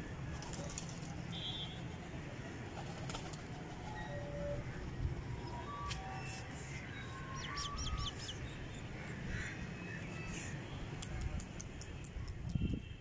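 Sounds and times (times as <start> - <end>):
birds chirping: 4.7 - 10.9
sharp clicks: 11.0 - 12.9.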